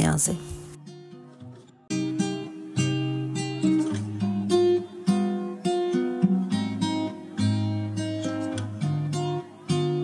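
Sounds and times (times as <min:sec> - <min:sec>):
acoustic guitar chords: 0:00.0 - 0:10.0.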